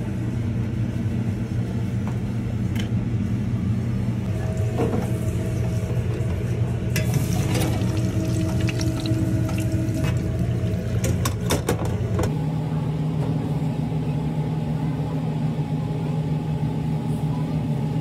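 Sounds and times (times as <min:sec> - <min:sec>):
low machine hum: 0:00.0 - 0:18.0
oil bubbling in a deep fryer: 0:04.3 - 0:11.6.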